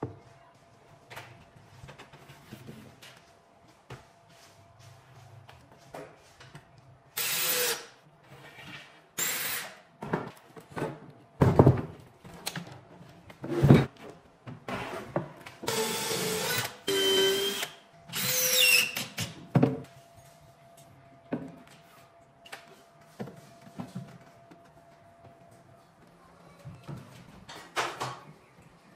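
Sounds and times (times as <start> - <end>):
cordless drill driving screws: 7.2 - 7.8, 15.7 - 19.0.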